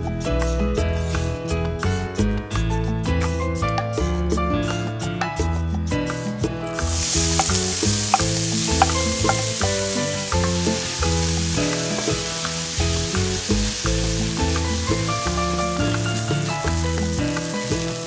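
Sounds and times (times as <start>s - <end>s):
background music: 0.0s - 18.0s
onion sizzling in hot oil: 6.8s - 18.0s.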